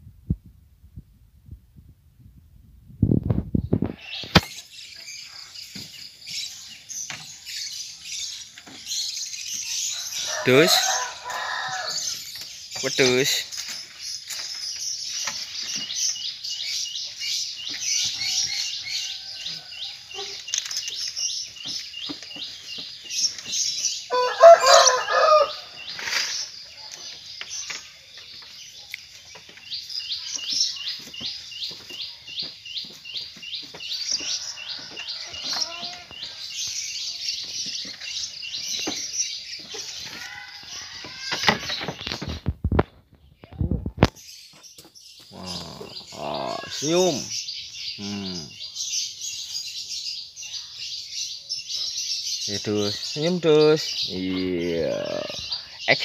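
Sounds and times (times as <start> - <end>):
small birds chirping: 3.0 - 56.0
rooster crowing: 10.0 - 12.1, 24.1 - 25.7, 34.2 - 36.1.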